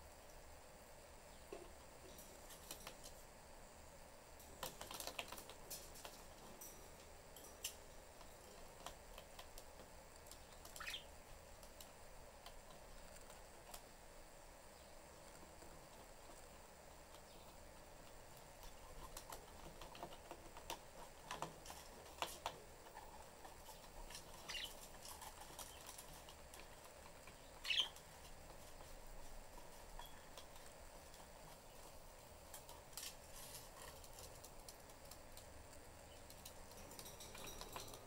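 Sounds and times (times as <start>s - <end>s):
birds tapping on perches: 4.4s - 13.9s, 15.2s - 38.0s
budgerigar chirps: 10.8s - 11.1s, 27.6s - 28.0s.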